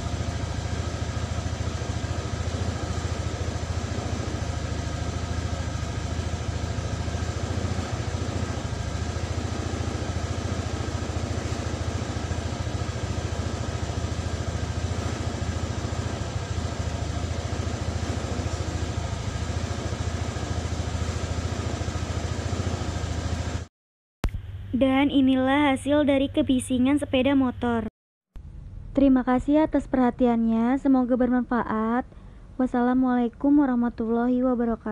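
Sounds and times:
scooter engine idling: 0:00.0 - 0:23.7.

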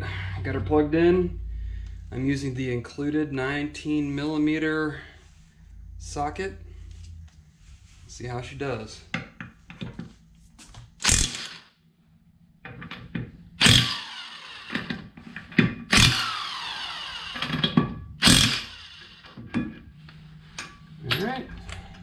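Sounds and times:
impact wrench hammering lug nuts: 0:11.0 - 0:11.6, 0:12.8 - 0:19.8
motor whining down: 0:13.6 - 0:14.9, 0:15.9 - 0:17.6, 0:18.2 - 0:19.3.

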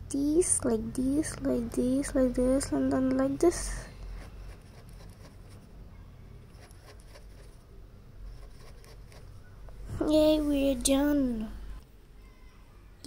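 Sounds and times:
pen scratching on paper: 0:04.1 - 0:05.6, 0:06.5 - 0:07.6, 0:08.3 - 0:09.3.

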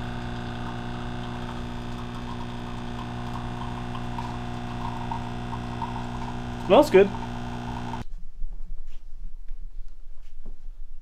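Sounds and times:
coffee machine pump humming: 0:00.0 - 0:08.0.

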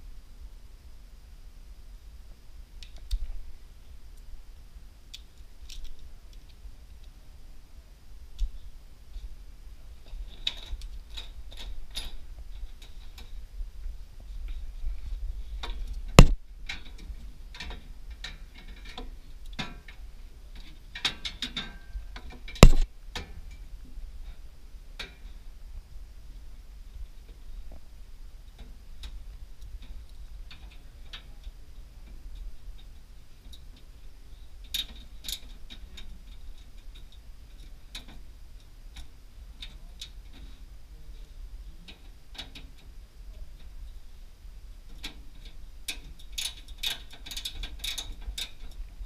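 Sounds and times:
clicks and metal rattling: 0:15.6 - 0:24.4, 0:44.9 - 0:48.9.

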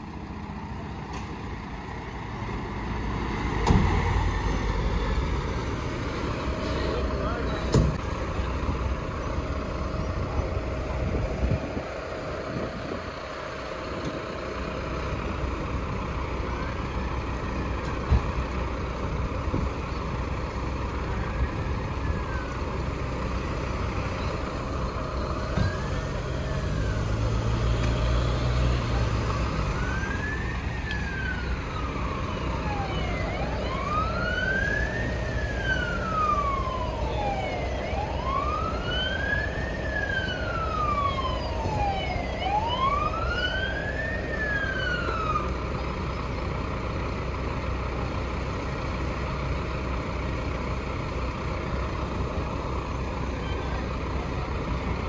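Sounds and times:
low engine rumble: 0:00.0 - 0:55.0
wailing siren: 0:20.2 - 0:45.8.

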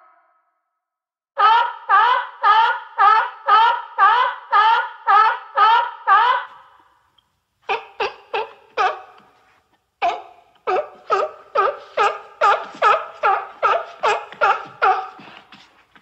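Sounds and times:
sea lion barking: 0:07.7 - 0:09.4, 0:10.0 - 0:15.6.

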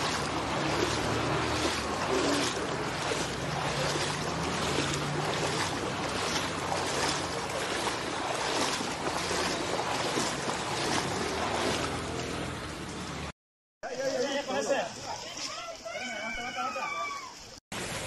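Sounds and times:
water rushing on flooded street: 0:00.0 - 0:18.0.

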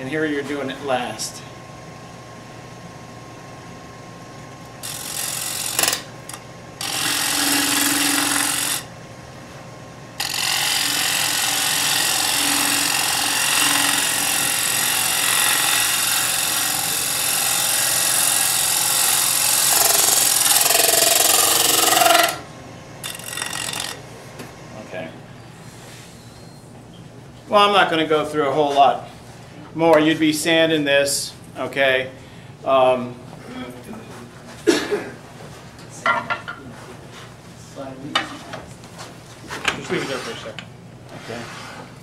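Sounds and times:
lathe tool cutting wood: 0:04.8 - 0:06.1, 0:06.8 - 0:08.9, 0:10.2 - 0:22.4, 0:23.0 - 0:24.0.

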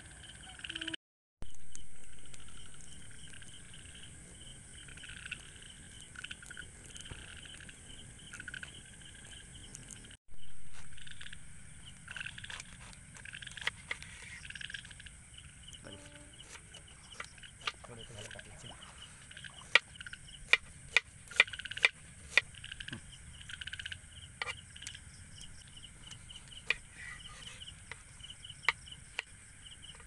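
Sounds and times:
frogs calling: 0:00.0 - 0:01.0, 0:02.1 - 0:10.2, 0:10.9 - 0:30.0
campfire crackling: 0:01.4 - 0:10.2.

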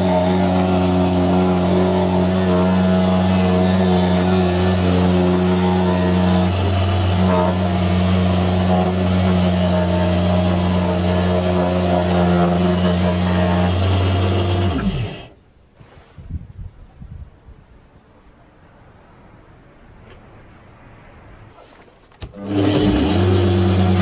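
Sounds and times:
wood sanding on drum: 0:00.0 - 0:14.7
grinder motor hum: 0:00.0 - 0:15.4, 0:22.2 - 0:24.0.

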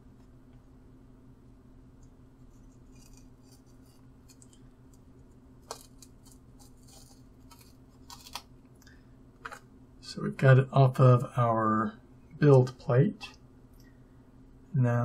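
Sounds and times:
steady low hum: 0:00.0 - 0:15.0
faint crackling with small clicks: 0:01.9 - 0:09.6
tape peeling and crumpling: 0:02.5 - 0:05.0, 0:05.6 - 0:08.5.

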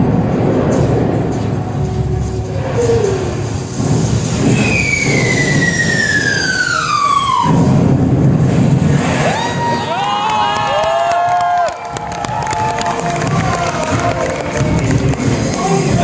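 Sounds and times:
low rumble: 0:00.0 - 0:10.0
long falling whistle: 0:04.5 - 0:07.7.

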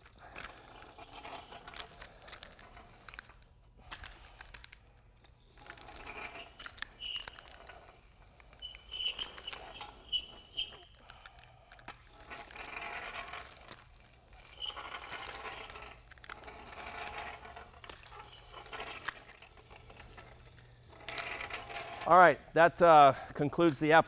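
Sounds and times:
short high squeaks: 0:05.4 - 0:11.3, 0:12.0 - 0:23.1.

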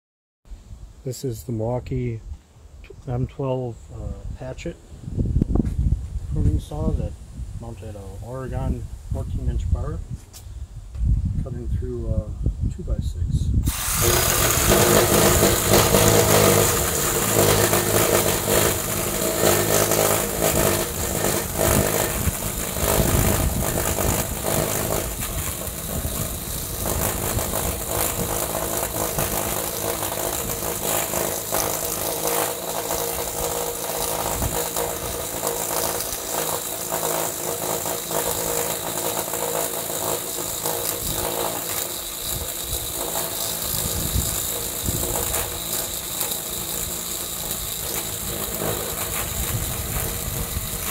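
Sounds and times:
chainsaw cutting wood: 0:13.6 - 0:50.9.

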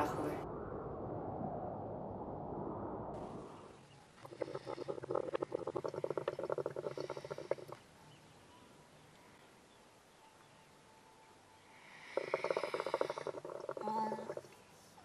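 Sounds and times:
hookah water bubbling: 0:03.2 - 0:07.8, 0:11.9 - 0:14.6.

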